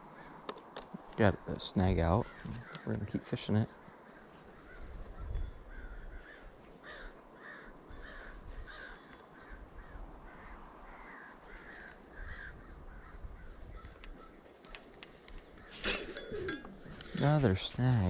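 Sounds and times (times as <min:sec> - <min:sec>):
crow cawing: 0:02.3 - 0:03.0, 0:05.6 - 0:14.9.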